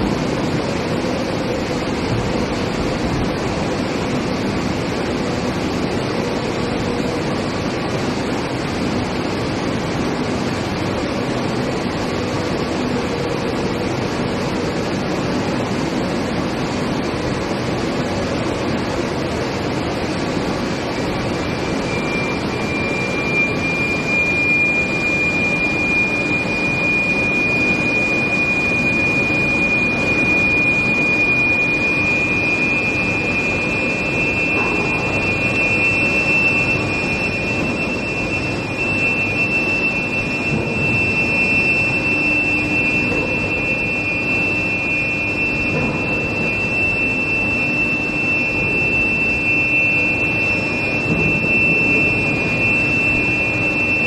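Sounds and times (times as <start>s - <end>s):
high whine of induction coils: 0.0s - 54.0s
steady industrial noise: 0.0s - 54.0s
second higher whine: 17.5s - 54.0s.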